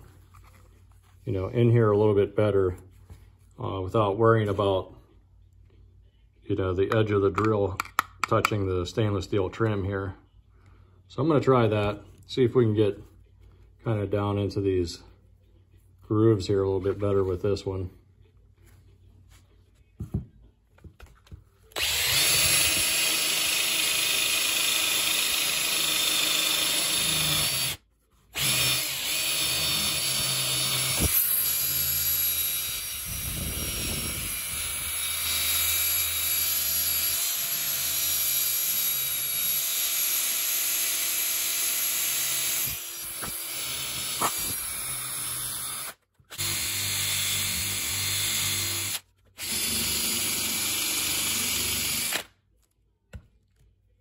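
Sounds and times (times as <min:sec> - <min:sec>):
drill motor whine: 0:21.8 - 0:27.8, 0:28.4 - 0:52.3.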